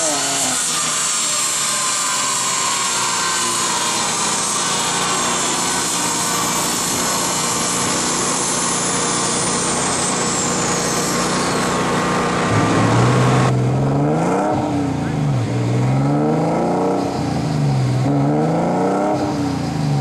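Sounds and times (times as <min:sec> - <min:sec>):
wheels and rollers whining: 0:00.0 - 0:15.7.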